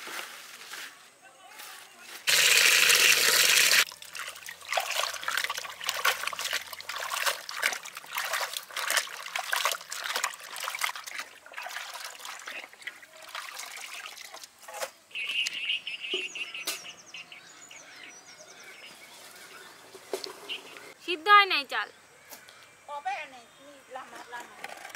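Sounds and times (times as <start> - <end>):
tap water running into metal bowl: 2.3 - 14.4
hands splashing water in basin: 2.3 - 14.5.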